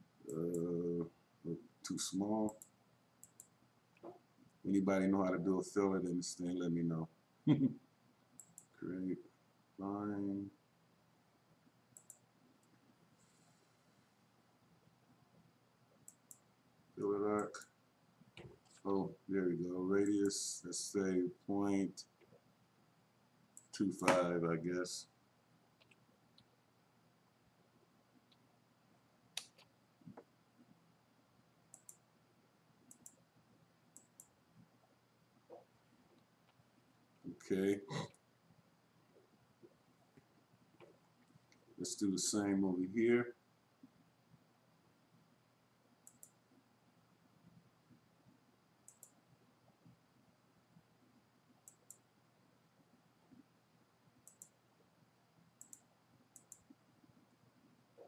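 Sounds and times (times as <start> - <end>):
computer mouse clicking: 2.5 - 4.1, 8.4 - 8.8, 11.9 - 12.8, 16.0 - 16.4, 25.8 - 26.5, 29.4 - 30.2, 31.7 - 32.0, 32.8 - 33.2, 33.9 - 34.4, 46.0 - 46.4, 48.8 - 49.2, 51.6 - 52.0, 54.2 - 54.6, 55.6 - 56.8.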